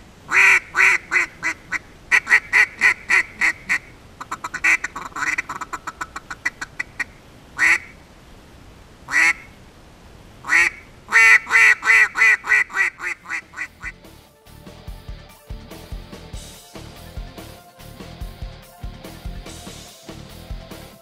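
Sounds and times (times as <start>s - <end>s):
duck call quacking: 0.3s - 8.0s, 9.1s - 9.5s, 10.4s - 14.1s.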